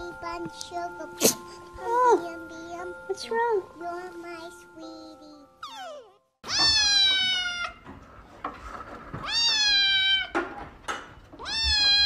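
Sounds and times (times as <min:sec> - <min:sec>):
kitten meowing: 0:05.6 - 0:07.8, 0:09.2 - 0:10.3, 0:11.4 - 0:12.0.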